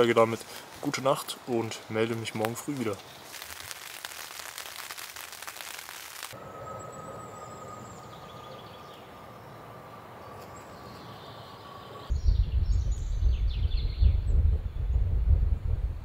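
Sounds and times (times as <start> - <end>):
faint outdoor hiss: 0.0 - 13.3
thin high tone: 5.2 - 10.8
birds chirping: 6.4 - 15.0
wind buffeting microphone: 12.1 - 16.0.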